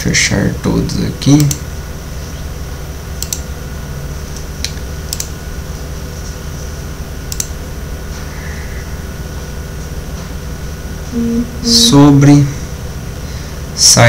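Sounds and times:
low electrical hum: 0.0 - 14.0
computer mouse clicks: 3.2 - 3.5, 4.6 - 5.3, 7.3 - 7.6.

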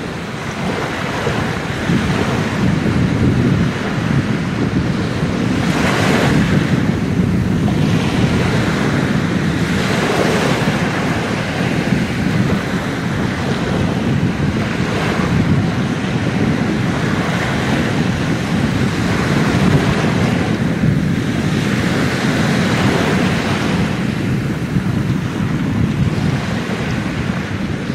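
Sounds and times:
small waves breaking on sand: 0.0 - 27.9.

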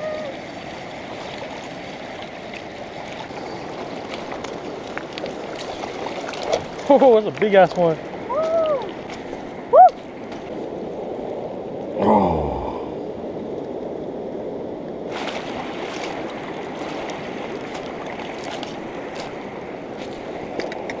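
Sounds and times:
short falling voice: 12.0 - 13.0.

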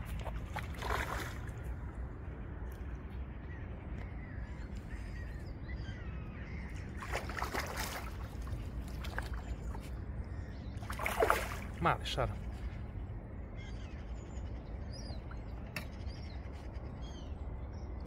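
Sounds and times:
fish splashing in water: 0.0 - 1.6, 6.9 - 9.8, 10.8 - 11.8
steady low rumble: 0.0 - 18.0.

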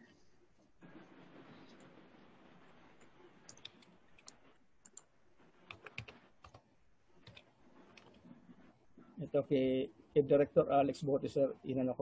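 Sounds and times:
low hiss: 0.0 - 12.0
keyboard and mouse clicks: 3.0 - 6.6, 7.2 - 8.2.

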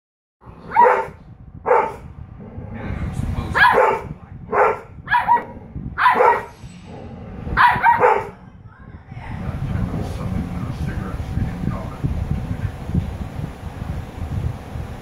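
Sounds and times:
dogs barking: 0.6 - 2.6, 3.5 - 8.5.

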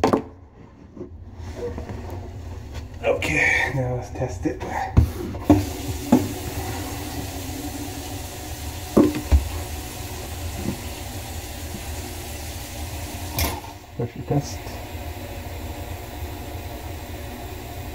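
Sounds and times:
tap water running into sink: 5.0 - 17.9.

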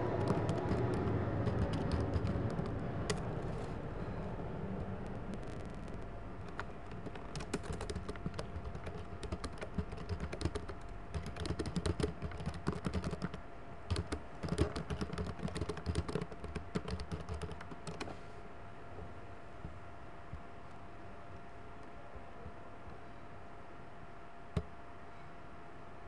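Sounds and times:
computer keyboard typing: 0.0 - 3.3, 5.0 - 18.1
faint steady hum: 0.0 - 26.0.

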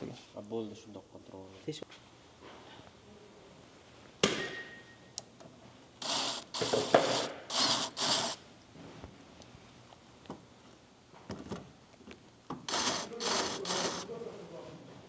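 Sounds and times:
metal clank with ring: 4.4 - 5.1
cordless drill boring: 6.0 - 8.4, 12.6 - 14.1.

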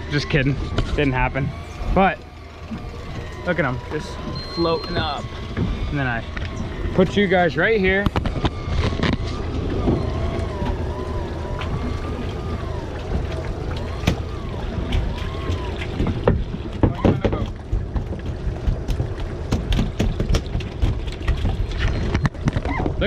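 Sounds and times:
boat engine rumble: 0.0 - 23.0
faint wavering tune: 1.3 - 15.8
sharp knocks: 15.5 - 21.6.

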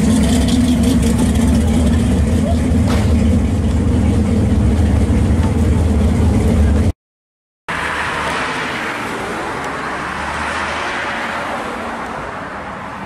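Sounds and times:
low engine hum: 0.0 - 6.9
tyre and road noise: 0.0 - 7.0, 7.7 - 13.0.

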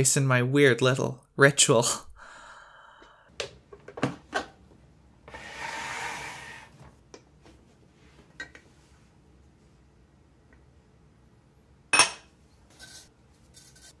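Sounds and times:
glass scraping on wooden counter: 5.3 - 6.7.

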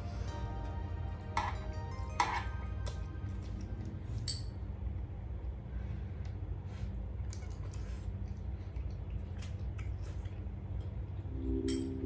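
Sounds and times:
steady low hum: 0.0 - 12.0
chopsticks clinking on plates: 1.2 - 3.6.

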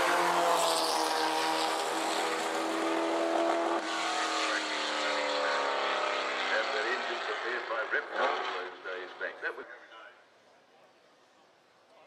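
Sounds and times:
racing car engine accelerating: 0.0 - 9.2.

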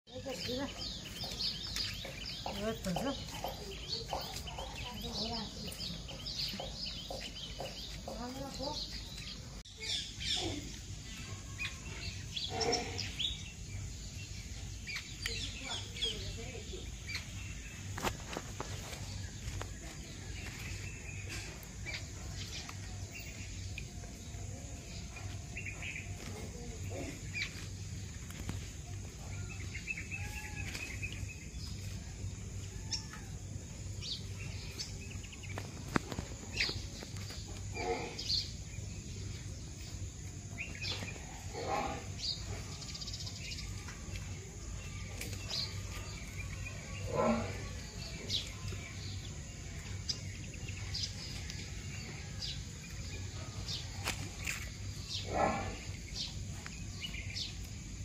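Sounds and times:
bird chirps: 0.1 - 33.3.

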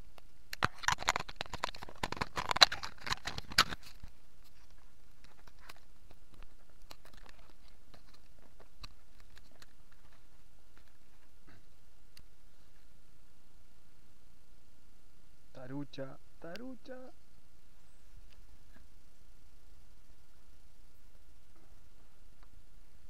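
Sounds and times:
close crackling and rustling: 0.0 - 13.1
low steady hiss: 0.0 - 23.0.

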